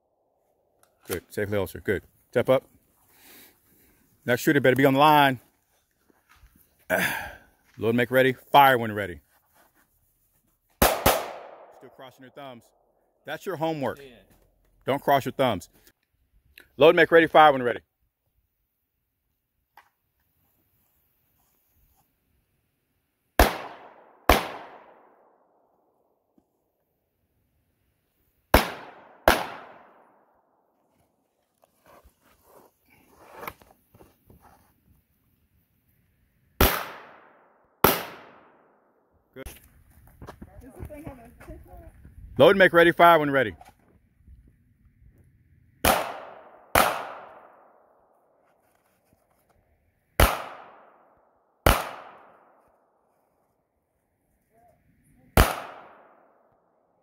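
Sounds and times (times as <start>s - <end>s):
pistol shots with echo: 10.8s - 11.9s, 23.4s - 25.4s, 28.5s - 30.3s, 36.6s - 38.7s, 45.8s - 47.8s, 50.2s - 51.0s, 51.6s - 52.6s, 55.4s - 56.4s.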